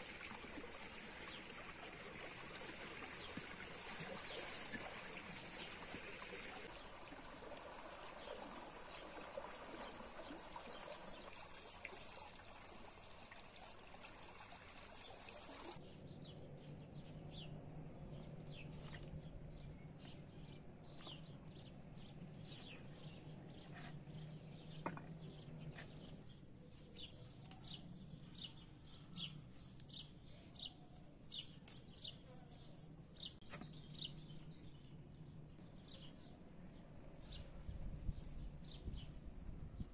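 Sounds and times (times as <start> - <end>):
small birds chirping: 14.9 - 36.4.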